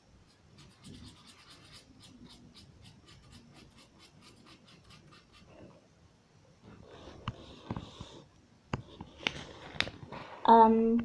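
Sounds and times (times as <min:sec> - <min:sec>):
brush scratching on paper: 0:00.3 - 0:05.6.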